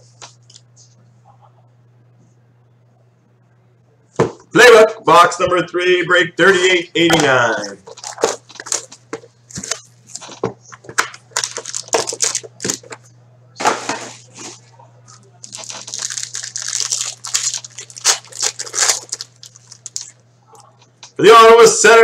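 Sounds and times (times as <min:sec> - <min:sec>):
foil pack crinkling and tearing: 0:07.8 - 0:10.4, 0:11.0 - 0:12.9, 0:15.4 - 0:20.2.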